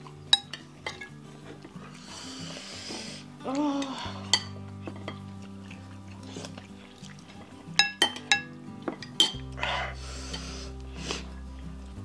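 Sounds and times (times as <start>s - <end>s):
soft background music: 0.0s - 12.0s
spoons clinking on ceramic bowls: 0.3s - 1.2s, 3.8s - 5.4s, 7.7s - 9.5s.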